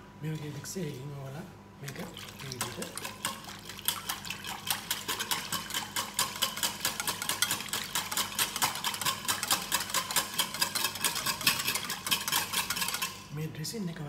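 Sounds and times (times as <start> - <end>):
whisk clicking against glass bowl: 2.4 - 13.3.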